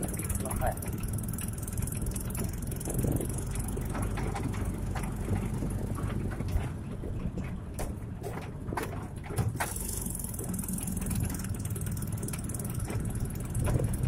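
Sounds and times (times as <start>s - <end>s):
motorcycle engine running: 0.0s - 8.4s, 9.5s - 14.0s
knocks and rattles from bumps: 0.0s - 14.0s.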